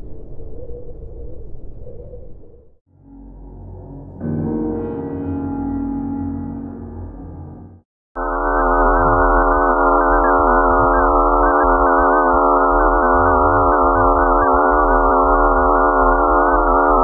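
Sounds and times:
synthesized space drone: 2.9s - 17.0s
warbling flickering high tones: 8.2s - 17.0s
low rumble: 8.7s - 17.0s.

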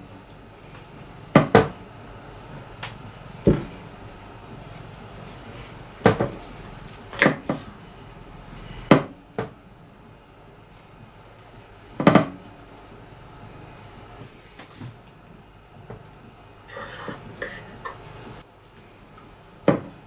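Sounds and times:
rolling pin knocking on marble: 1.3s - 1.8s, 12.0s - 12.4s, 19.7s - 19.9s.

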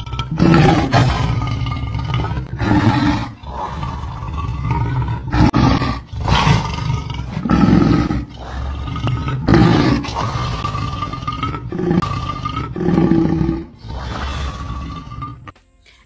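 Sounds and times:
lion roaring: 0.0s - 15.5s.

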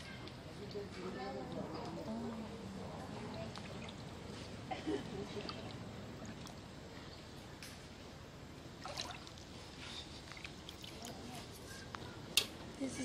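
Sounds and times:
stream water trickling: 2.3s - 6.8s, 8.6s - 11.7s
small water splashes: 3.2s - 4.3s, 5.2s - 6.7s, 8.8s - 11.5s.

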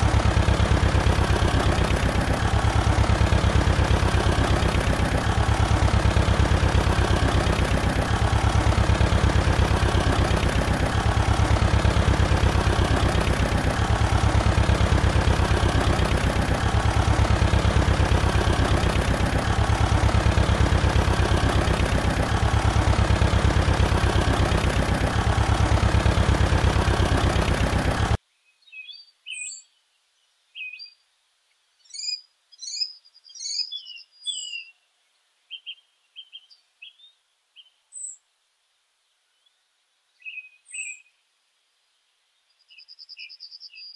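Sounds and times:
loud machine drone: 0.0s - 28.2s
bird chirps: 28.4s - 29.8s, 31.8s - 34.9s, 42.5s - 43.9s.

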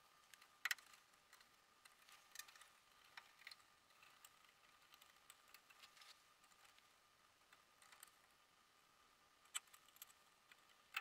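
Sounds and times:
wires and connectors clicking: 9.5s - 11.0s.

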